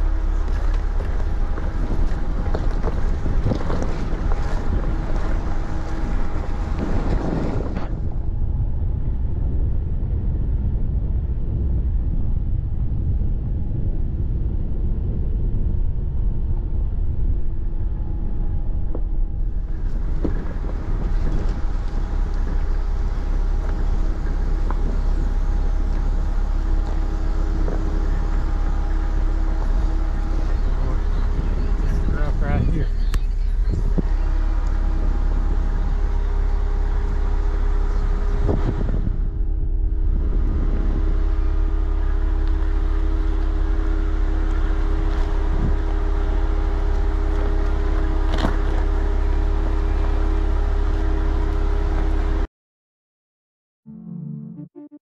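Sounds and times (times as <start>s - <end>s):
rocks knocking and rattling: 0.0s - 7.9s
engine and tyres rumbling: 0.0s - 52.5s.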